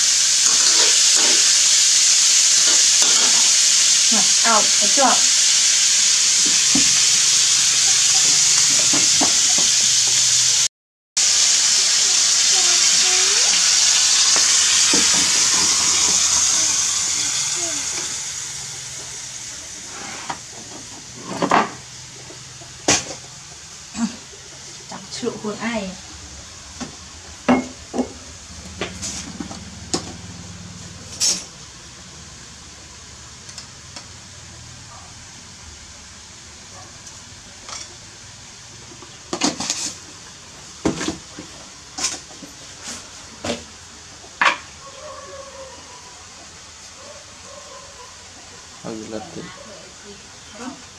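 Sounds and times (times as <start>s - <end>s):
food frying in a pan: 0.0s - 50.9s
containers and utensils clinking: 8.1s - 10.3s.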